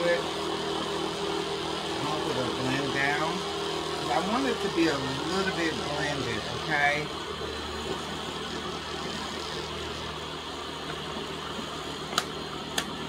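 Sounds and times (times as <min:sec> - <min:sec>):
blender motor running: 0:00.0 - 0:13.0
sharp click: 0:12.1 - 0:12.9.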